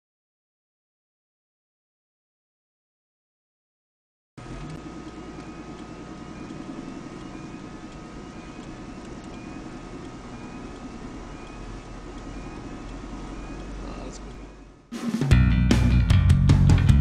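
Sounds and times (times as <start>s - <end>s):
car engine and road rumble: 4.4s - 14.9s.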